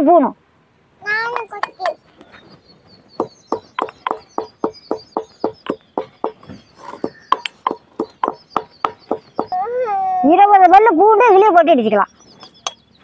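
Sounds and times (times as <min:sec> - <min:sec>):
stone pestle pounding spices: 0:03.2 - 0:09.5.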